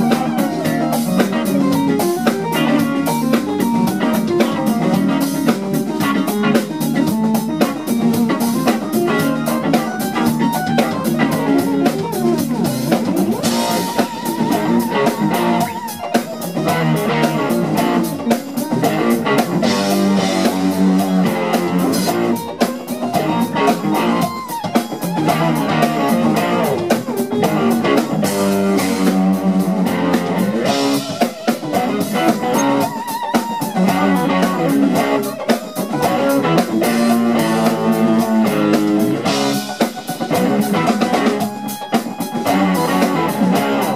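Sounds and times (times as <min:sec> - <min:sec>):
electric guitar lead: 0:00.0 - 0:43.9
funk band playing: 0:00.0 - 0:43.9.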